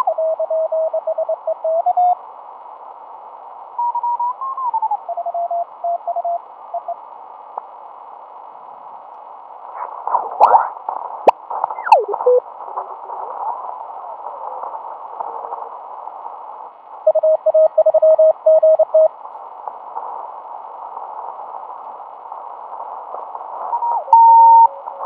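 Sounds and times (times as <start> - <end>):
shortwave radio hiss: 0.0 - 25.0
radio whistle gliding: 11.8 - 12.4.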